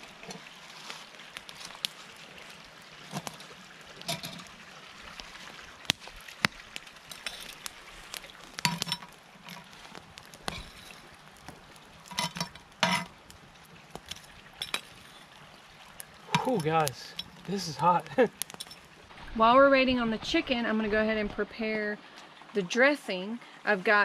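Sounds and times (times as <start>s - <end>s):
coals clinking against iron: 0.0s - 19.0s.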